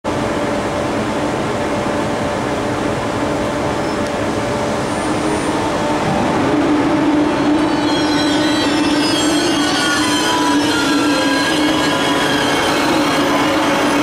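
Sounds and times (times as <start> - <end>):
electric train equipment hum: 0.1 - 14.0.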